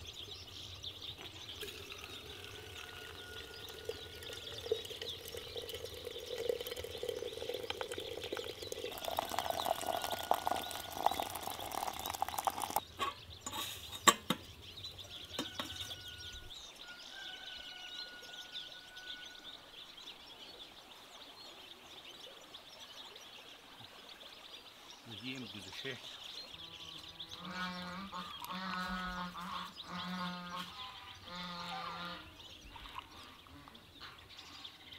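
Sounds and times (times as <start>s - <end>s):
water running into teapot: 1.2s - 12.8s, 32.8s - 33.2s.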